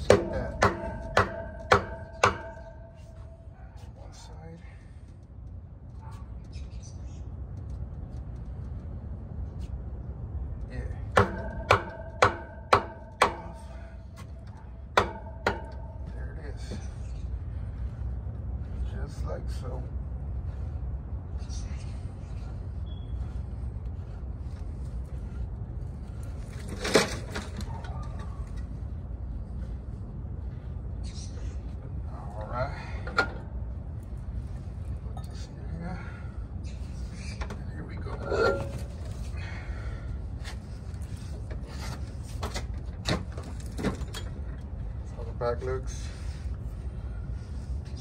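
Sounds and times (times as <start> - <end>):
sharp metallic clack: 0.0 - 3.4, 11.2 - 16.2
metal and tyre scraping: 0.0 - 4.3, 21.4 - 35.6, 36.6 - 48.0
steady low rumble: 0.0 - 48.0.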